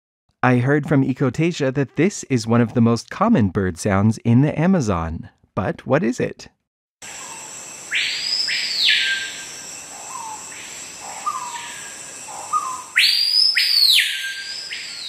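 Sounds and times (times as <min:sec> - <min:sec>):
bird whistled call: 0:07.2 - 0:09.4, 0:11.1 - 0:15.0.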